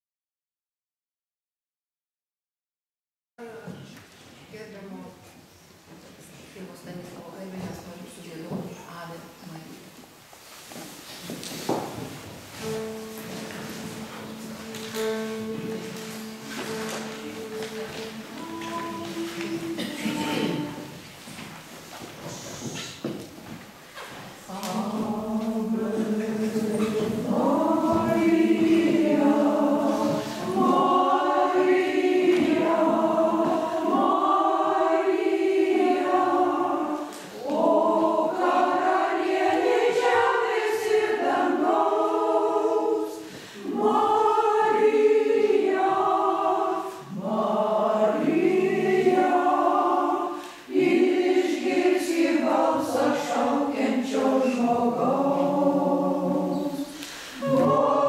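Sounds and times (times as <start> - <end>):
choir singing a hymn: 11.3 - 23.2, 24.0 - 58.0.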